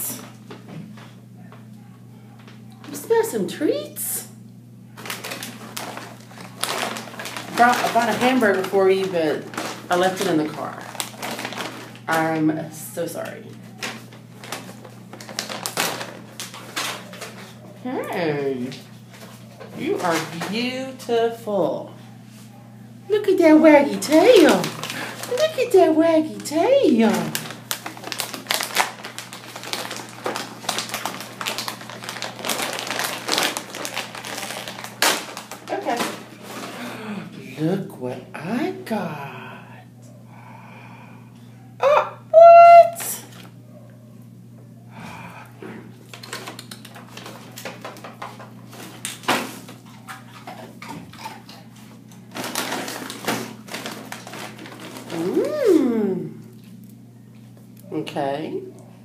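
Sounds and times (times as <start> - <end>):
steady low hum: 0.0 - 59.0
rustling and crinkling: 4.9 - 12.4, 13.2 - 21.0, 23.6 - 36.9, 45.7 - 55.8.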